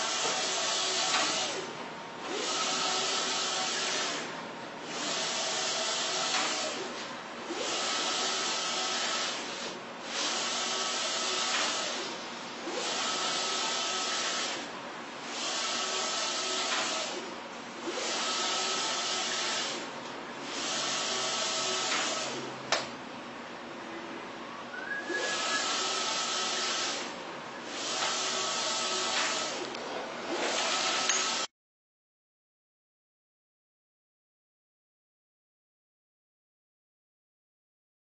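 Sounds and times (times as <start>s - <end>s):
printer carriage whirring: 0.0s - 23.0s, 24.8s - 31.5s.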